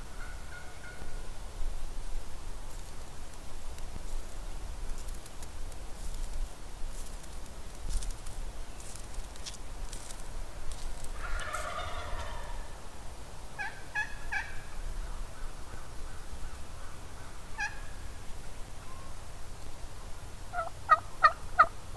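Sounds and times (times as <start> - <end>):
turkey calling: 0.0 - 1.3, 11.2 - 12.8, 13.6 - 18.0, 20.5 - 21.7.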